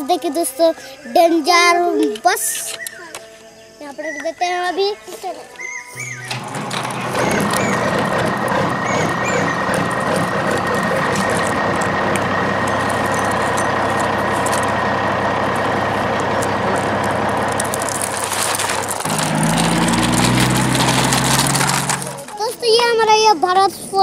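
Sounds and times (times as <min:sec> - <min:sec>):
thin held whine: 0:05.2 - 0:22.5
truck engine running: 0:06.2 - 0:22.6.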